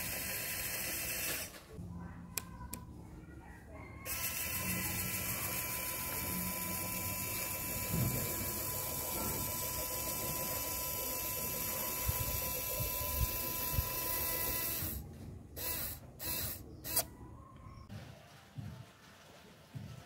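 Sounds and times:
small motor whining: 0.0s - 1.6s, 4.0s - 17.1s.

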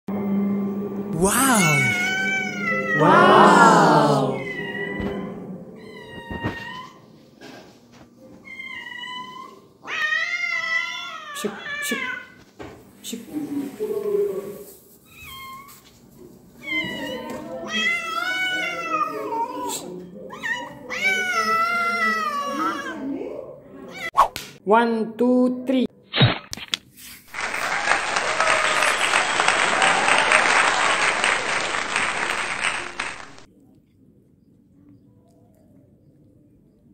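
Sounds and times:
crowd applause: 1.2s - 2.0s, 3.0s - 4.5s, 27.3s - 33.5s
cat meowing: 1.6s - 3.0s, 4.4s - 5.2s.

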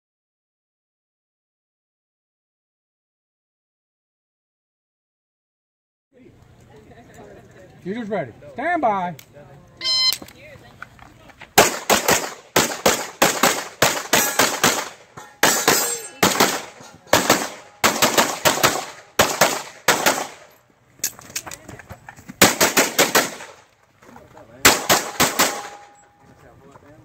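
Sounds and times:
pistol shots fired rapidly: 11.6s - 20.5s, 22.4s - 23.6s, 24.6s - 25.9s.

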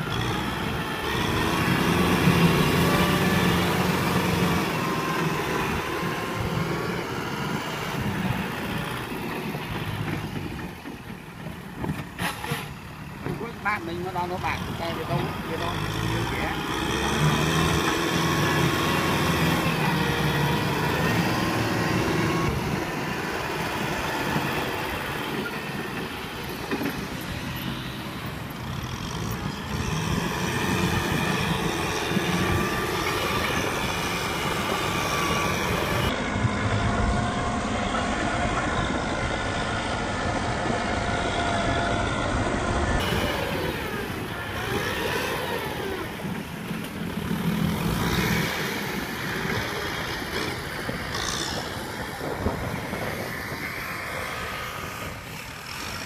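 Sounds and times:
tractor diesel engine under load: 0.0s - 56.0s
blade pushing dirt: 11.6s - 28.2s.

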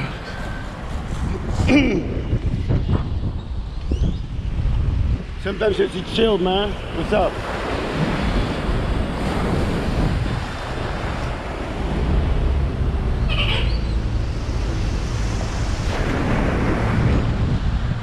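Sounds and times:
wind buffeting microphone: 0.0s - 18.0s
waves washing onto rocks: 5.7s - 12.5s, 14.1s - 18.0s
high rising squeak: 13.2s - 14.8s.

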